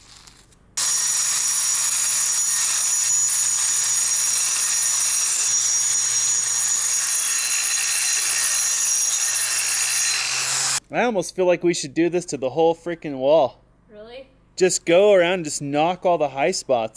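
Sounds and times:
angle grinder grinding concrete: 0.8s - 10.8s.

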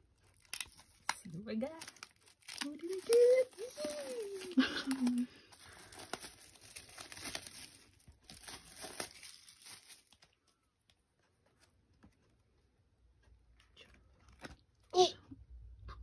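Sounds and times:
plastic wrap crinkling: 0.0s - 12.4s.

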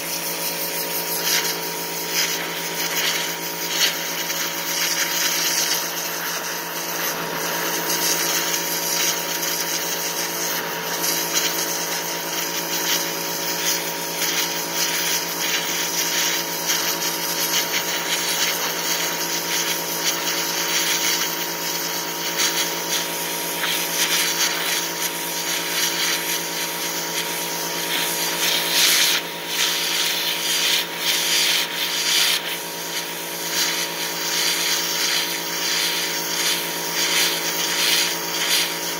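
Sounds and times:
pressure washer motor hum: 0.0s - 38.9s
water jet hissing: 0.0s - 38.9s.

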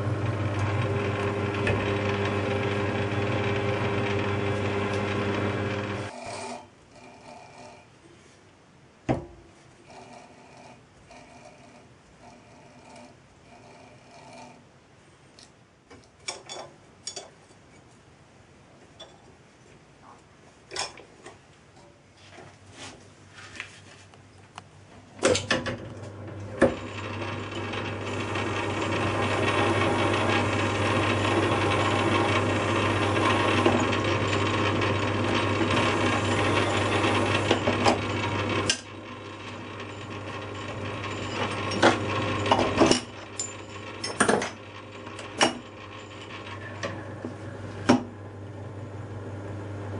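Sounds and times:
lathe humming: 0.0s - 7.9s, 26.0s - 49.9s
drill cutting metal: 26.6s - 43.8s.

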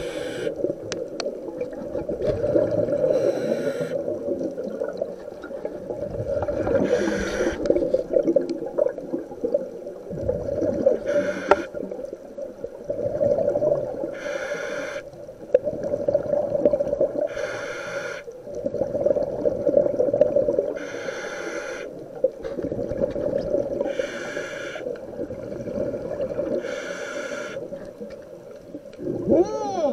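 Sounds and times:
regulator inhalation hiss: 0.0s - 0.6s, 3.1s - 4.0s, 6.8s - 7.7s, 11.0s - 11.8s, 14.1s - 15.2s, 17.2s - 18.3s, 20.8s - 22.0s, 23.8s - 24.9s, 26.6s - 27.7s
exhaled bubbles gurgling: 0.0s - 29.9s.

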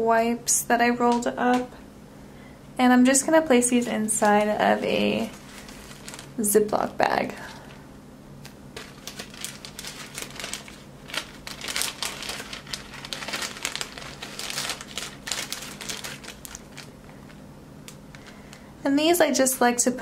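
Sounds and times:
plastic bag crinkling and rustling: 3.0s - 7.8s, 8.7s - 18.6s.

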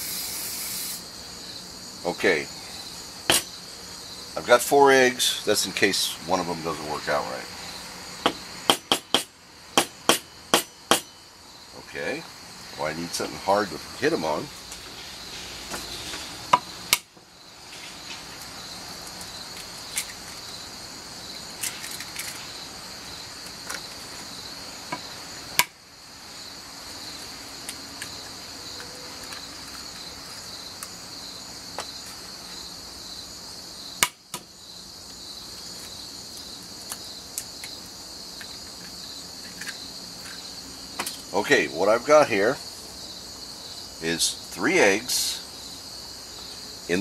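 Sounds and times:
insects chirring: 0.0s - 47.0s.

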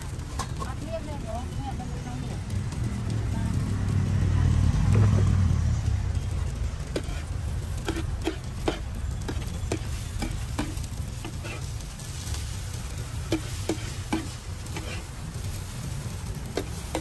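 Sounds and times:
metal spatula clacking on griddle: 0.0s - 0.8s, 6.8s - 11.7s, 13.3s - 15.4s, 16.5s - 17.0s
food sizzling: 0.0s - 17.0s
low rumble: 0.7s - 13.4s.

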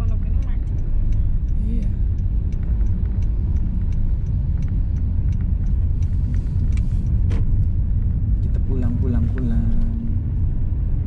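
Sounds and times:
car engine and tyres rumbling: 0.0s - 11.0s.

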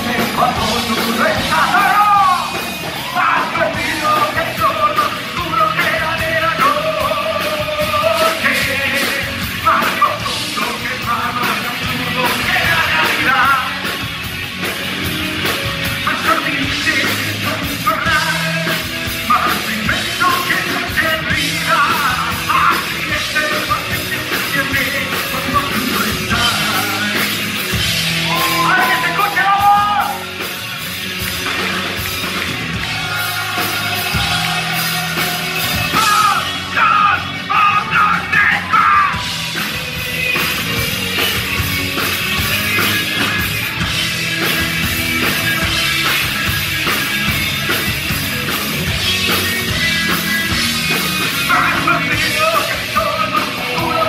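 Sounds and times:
man singing: 0.0s - 14.0s, 16.0s - 30.2s, 33.0s - 39.3s, 51.2s - 54.0s
drum kit: 0.0s - 54.0s
electric guitar: 0.0s - 54.0s.

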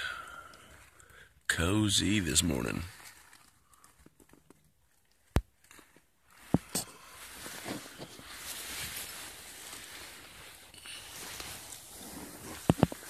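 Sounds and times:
rustling of fabric and dry leaves: 0.2s - 13.0s.

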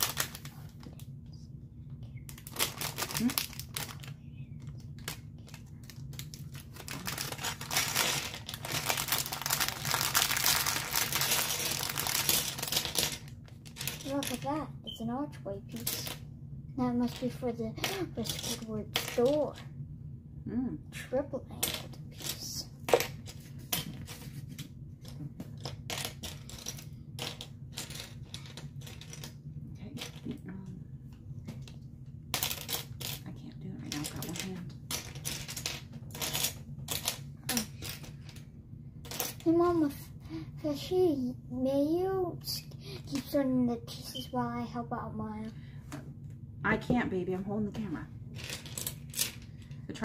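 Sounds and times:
plastic packaging crinkling: 0.0s - 0.8s, 2.3s - 14.3s
plastic pieces clicking: 2.3s - 14.5s, 25.0s - 29.4s, 31.6s - 33.2s, 33.9s - 38.4s, 48.4s - 49.7s.

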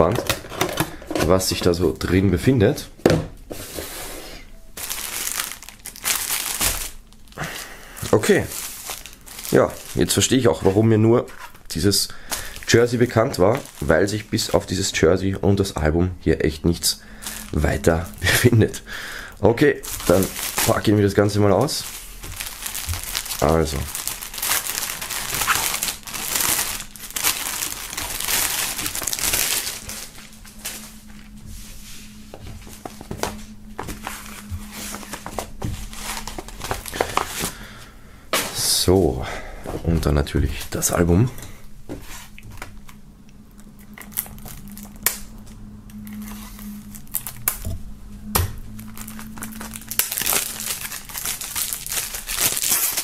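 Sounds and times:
plastic bag crinkling: 4.7s - 15.0s, 16.8s - 31.4s, 32.6s - 38.8s, 43.6s - 47.8s, 48.6s - 53.0s.

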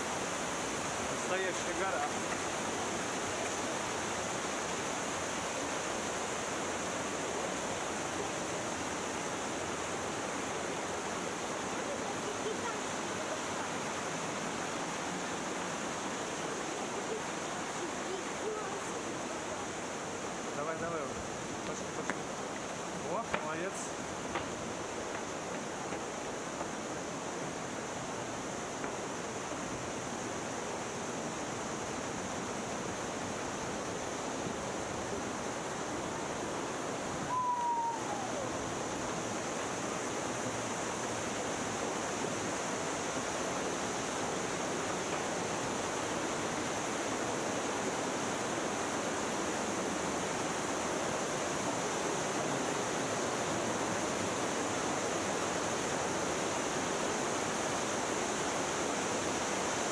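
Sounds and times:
stream rushing over rocks: 0.0s - 59.9s
falling whistle: 37.3s - 38.5s.

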